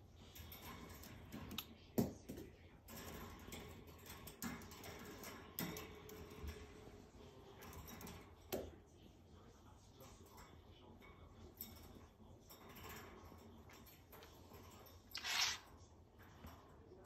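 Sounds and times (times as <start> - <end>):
bird claws tapping on wire cage: 0.4 - 6.7, 7.5 - 8.7.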